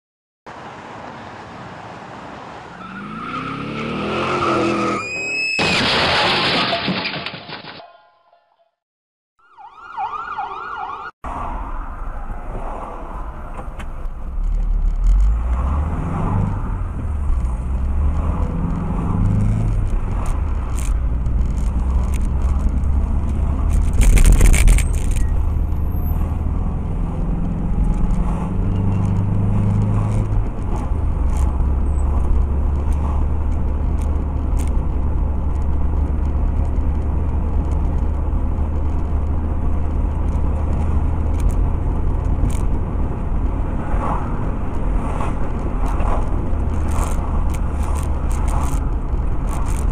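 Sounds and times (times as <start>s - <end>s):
road noise: 0.5s - 7.8s, 9.4s - 49.9s
vehicle engine: 11.3s - 49.9s.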